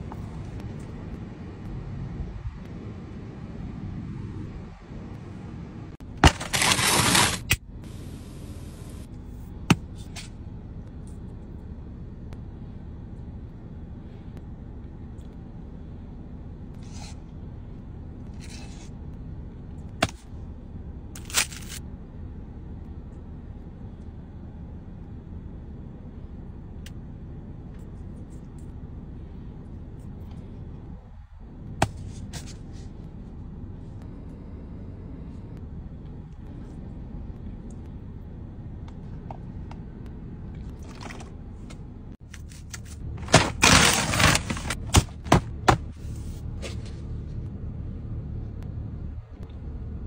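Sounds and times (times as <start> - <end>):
food-handling rustles: 6.3 - 7.4.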